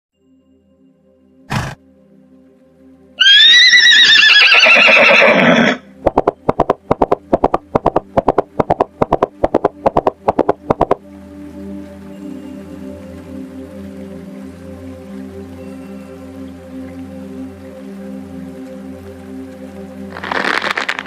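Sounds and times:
soft background music: 0.2 - 21.0
horse neighing: 1.5 - 1.8, 3.2 - 5.8.

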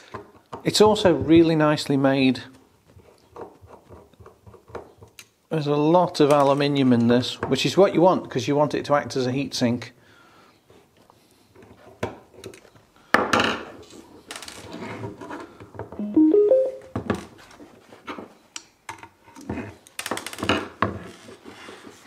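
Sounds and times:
rising piano-like notes: 16.0 - 17.0.

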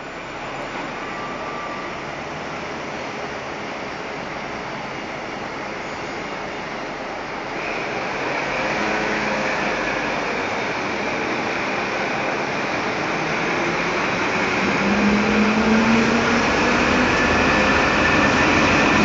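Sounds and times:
locomotive rushing noise: 6.4 - 19.0.

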